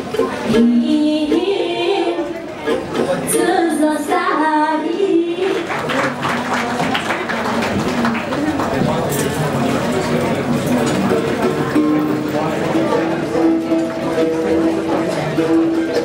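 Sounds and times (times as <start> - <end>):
audience clapping: 5.4 - 11.6.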